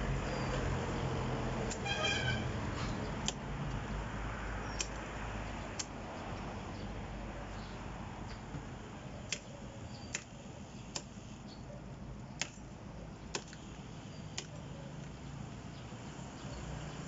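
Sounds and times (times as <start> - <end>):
machete chopping wood: 12.3 - 12.7, 13.3 - 13.7.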